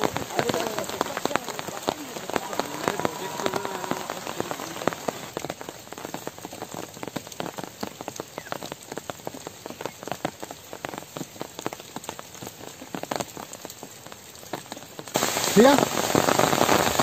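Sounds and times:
rain pattering: 0:00.0 - 0:17.0.

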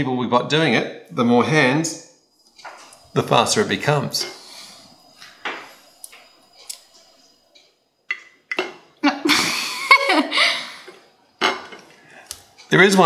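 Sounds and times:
person laughing: 0:09.0 - 0:10.8.

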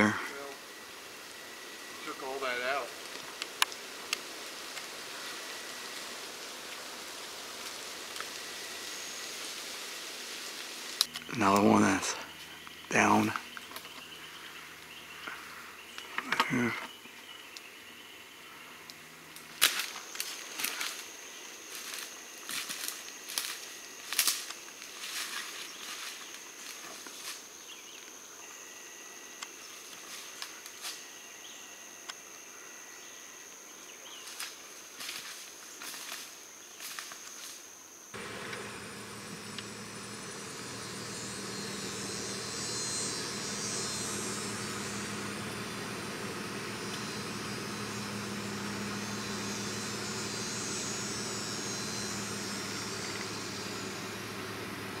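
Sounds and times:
insects droning: 0:00.0 - 0:55.0
footsteps in dry brush: 0:21.7 - 0:27.5, 0:34.2 - 0:37.4
vehicle engine hum and road noise: 0:38.2 - 0:55.0.

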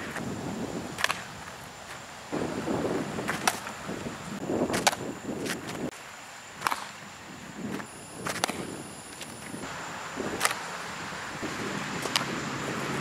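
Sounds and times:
softball smacking into leather glove: 0:06.6 - 0:06.9.

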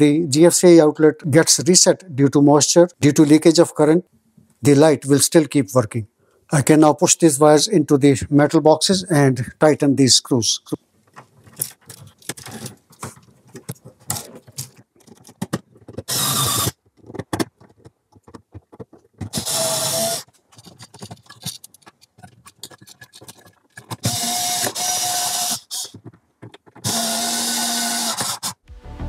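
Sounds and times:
wires rattling and clicking: 0:11.0 - 0:19.5, 0:20.2 - 0:25.0
electric screwdriver running: 0:16.1 - 0:16.7, 0:19.3 - 0:20.3, 0:24.0 - 0:25.9, 0:26.8 - 0:28.6.

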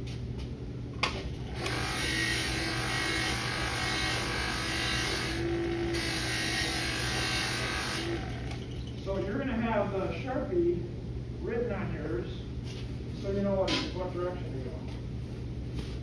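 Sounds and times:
buffing motor humming: 0:01.4 - 0:08.9
buffing wheel hissing on metal: 0:01.6 - 0:08.7.

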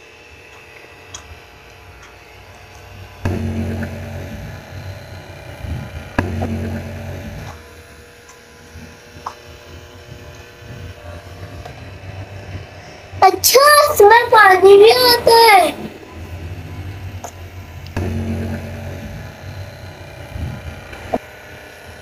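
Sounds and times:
small motor humming: 0:00.0 - 0:22.0.

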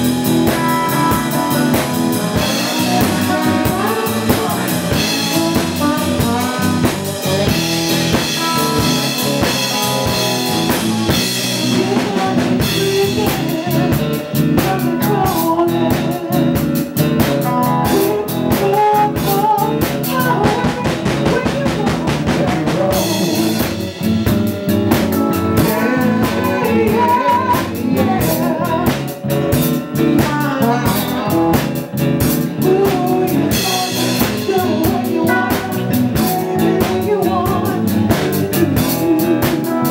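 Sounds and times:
blues band playing: 0:00.0 - 0:39.9.

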